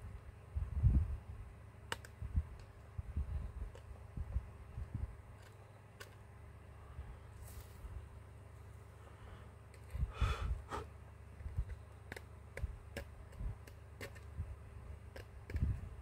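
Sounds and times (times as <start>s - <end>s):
soft rustle: 6.8s - 10.1s.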